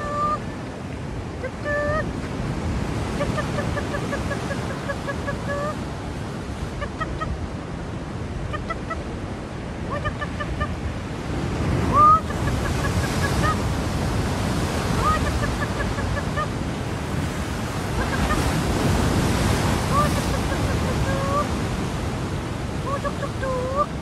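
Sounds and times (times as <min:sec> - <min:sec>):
gull calling: 0:00.0 - 0:00.5, 0:01.4 - 0:02.2, 0:03.0 - 0:05.8, 0:06.8 - 0:07.4, 0:08.5 - 0:09.1, 0:09.8 - 0:10.9, 0:11.8 - 0:13.7, 0:14.6 - 0:16.6, 0:17.9 - 0:21.7, 0:22.8 - 0:24.0
surf: 0:00.0 - 0:24.0
wind on microphone: 0:00.0 - 0:24.0.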